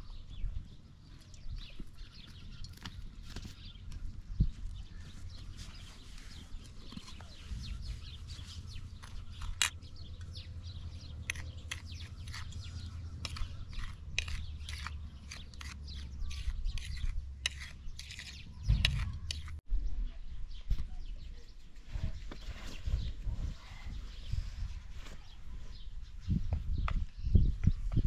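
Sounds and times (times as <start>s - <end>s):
metal spoon scraping a plate: 11.3s - 19.6s.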